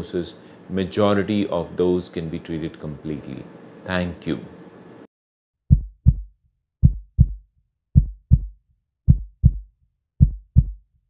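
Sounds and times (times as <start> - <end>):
heartbeat thumps: 5.7 - 7.4, 8.0 - 10.8.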